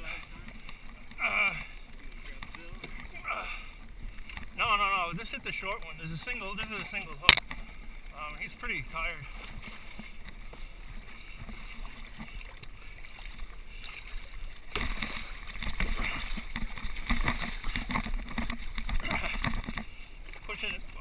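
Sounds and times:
boat engine: 0.0s - 21.0s
water splashing against hull: 0.0s - 21.0s
fish thrashing at surface: 13.2s - 20.0s.

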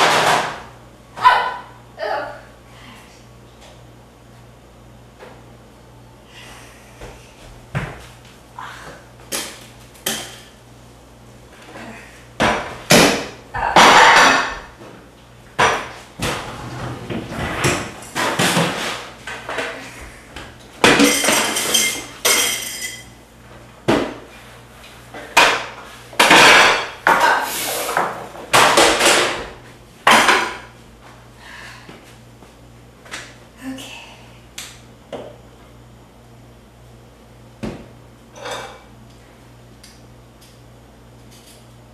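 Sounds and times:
dishes and pans clattering: 12.5s - 14.7s, 20.8s - 23.1s, 25.3s - 29.4s, 30.1s - 30.6s, 38.4s - 38.9s.

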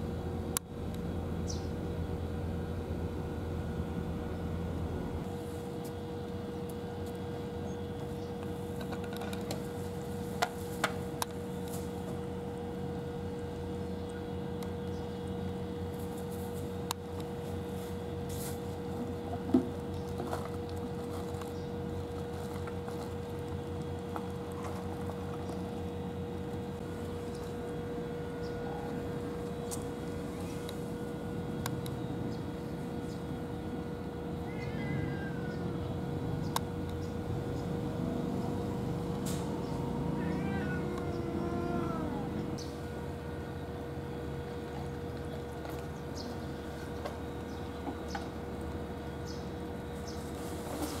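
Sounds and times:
steady low rumble: 0.0s - 5.4s, 35.5s - 43.5s
low machine hum with tone: 0.0s - 51.0s.

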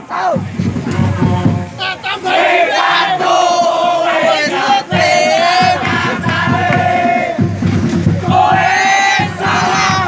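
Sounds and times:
crowd singing a chant: 1.0s - 10.0s.

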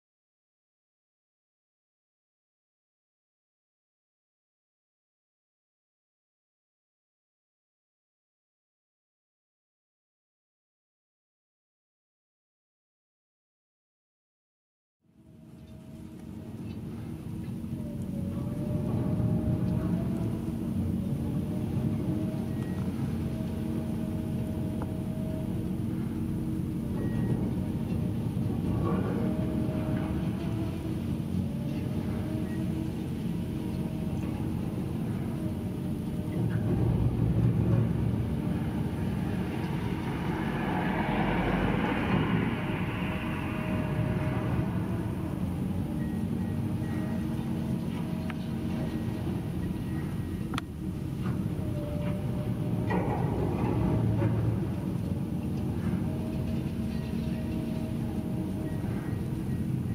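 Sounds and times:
excavator engine and hydraulics: 15.1s - 59.9s.

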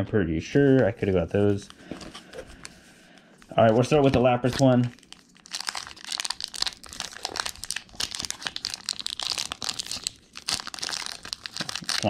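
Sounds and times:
foil wrapper crinkling: 4.4s - 12.0s.

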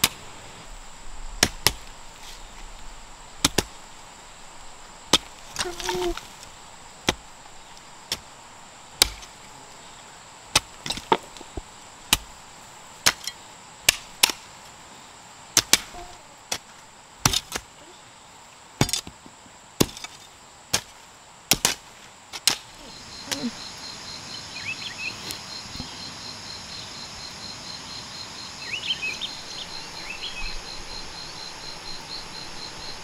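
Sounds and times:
hoes chopping into soil: 0.0s - 0.2s, 1.4s - 2.4s, 3.4s - 3.8s, 5.1s - 8.3s, 9.0s - 9.4s, 10.5s - 12.4s, 13.0s - 14.5s, 15.6s - 17.7s, 18.8s - 19.2s, 19.8s - 23.5s.

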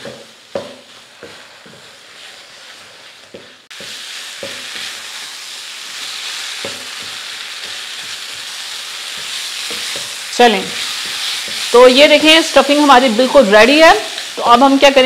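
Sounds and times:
spatula knocking against pan: 0.0s - 1.9s, 6.6s - 7.2s
spatula scraping a pan: 0.0s - 14.4s
stuffing sizzling in a pan: 0.0s - 15.0s.

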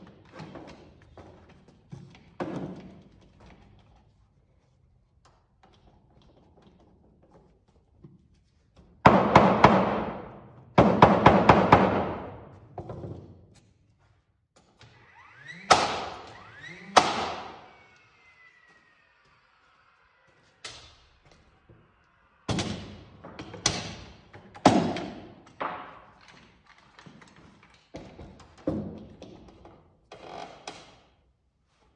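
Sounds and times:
heavy thuds on wooden truss: 9.1s - 12.8s.

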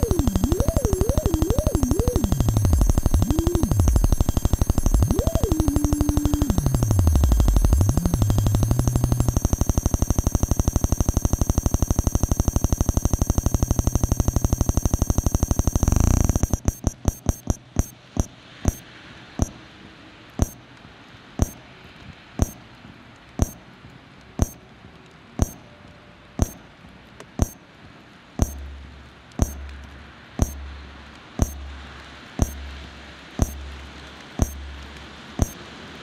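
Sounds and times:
deep bass pulse: 0.0s - 14.8s
sharp electronic click: 0.0s - 18.8s, 20.4s - 20.6s, 21.4s - 21.6s, 22.4s - 22.6s, 23.4s - 23.6s, 24.4s - 24.6s, 25.4s - 25.6s, 26.4s - 27.6s, 28.4s - 28.7s, 29.4s - 29.8s, 30.4s - 30.8s, 31.4s - 31.8s, 32.4s - 32.8s, 33.4s - 33.8s, 34.4s - 34.7s, 35.4s - 35.6s.

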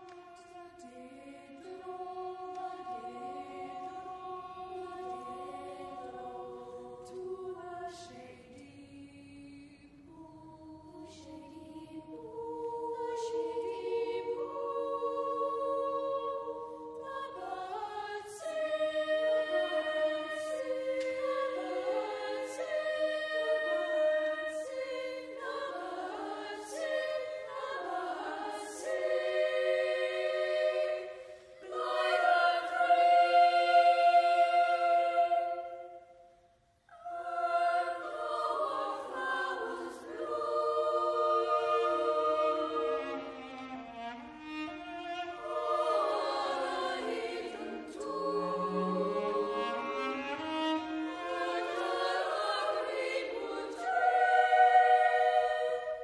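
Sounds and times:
boys' choir singing: 0.7s - 36.2s, 36.9s - 43.4s, 45.4s - 56.0s.

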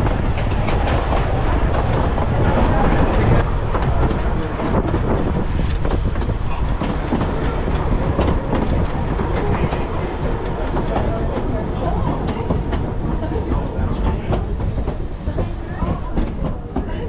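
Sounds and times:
tram rumbling on track: 0.0s - 17.0s
wheels clattering on rails: 0.0s - 17.0s.

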